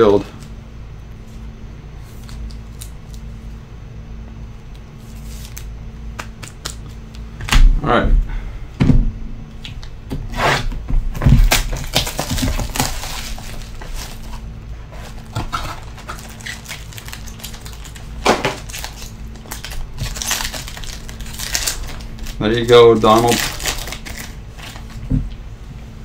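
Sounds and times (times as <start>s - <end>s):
plastic wrapping crinkling and tearing: 11.3s - 14.4s, 15.0s - 25.0s
card pack ripped open: 11.4s - 14.4s, 15.2s - 25.0s.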